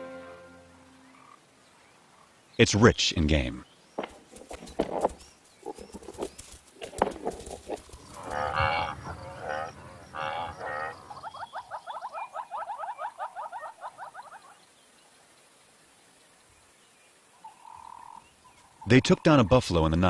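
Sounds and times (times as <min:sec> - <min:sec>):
rising chirping calls: 0:07.9 - 0:15.1
buffalo mooing: 0:08.1 - 0:11.0.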